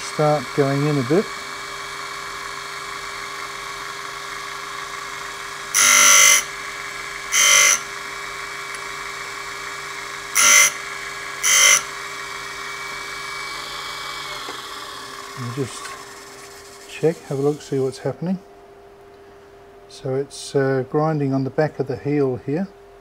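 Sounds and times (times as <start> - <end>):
grinding wheel hissing: 0.0 - 18.1
grinder motor hum: 0.0 - 18.4.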